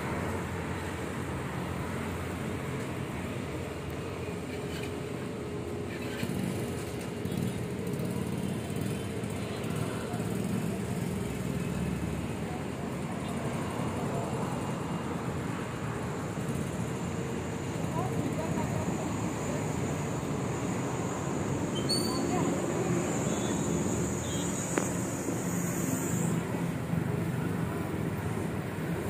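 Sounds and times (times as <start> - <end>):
road traffic noise: 0.0 - 29.0.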